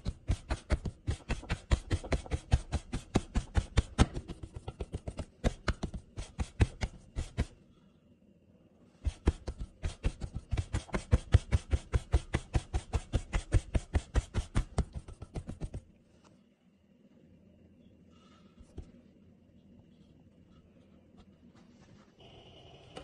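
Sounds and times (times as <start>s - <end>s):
hands slapping dough: 0.0s - 7.6s, 9.0s - 15.9s.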